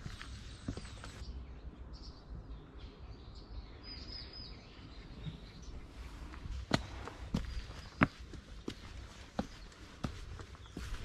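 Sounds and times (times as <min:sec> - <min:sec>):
footsteps on stone path: 0:00.0 - 0:01.2, 0:05.9 - 0:11.0
small birds chirping: 0:00.0 - 0:11.0.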